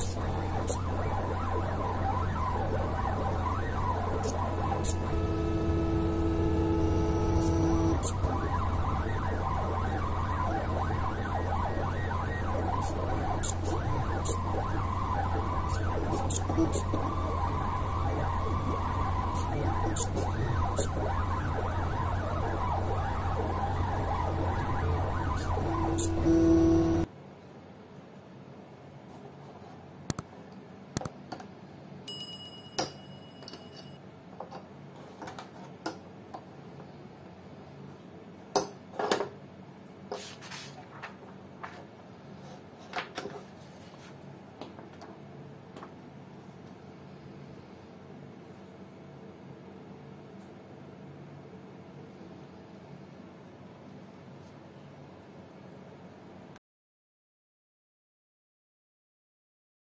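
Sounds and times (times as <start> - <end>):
stepper motors whining: 0.0 - 27.1.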